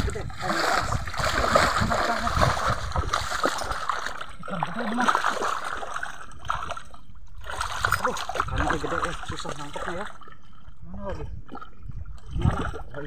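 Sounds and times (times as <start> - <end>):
water splashing and sloshing: 0.0 - 13.0.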